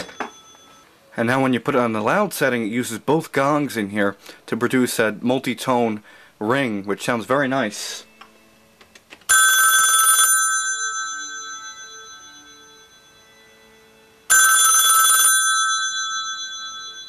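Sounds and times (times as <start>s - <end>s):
telephone bell ringing: 0.0s - 0.9s, 9.3s - 17.0s.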